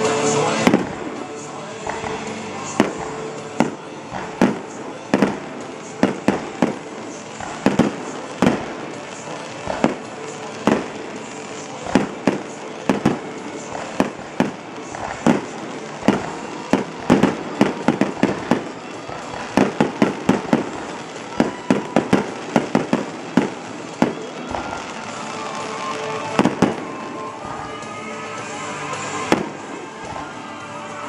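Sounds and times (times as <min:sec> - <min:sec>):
firework shells bursting: 0:00.5 - 0:28.0.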